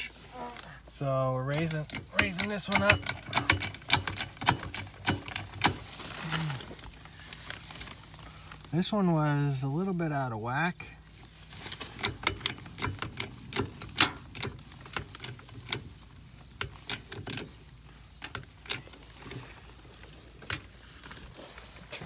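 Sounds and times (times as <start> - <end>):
clicks and knocks of jacking: 1.5 - 5.9, 11.7 - 19.5.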